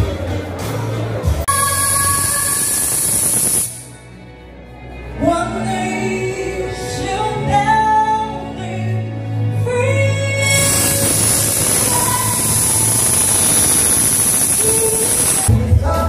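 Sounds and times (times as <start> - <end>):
loud music: 0.0 - 16.0
woman singing long sliding notes: 1.5 - 3.6, 9.6 - 16.0.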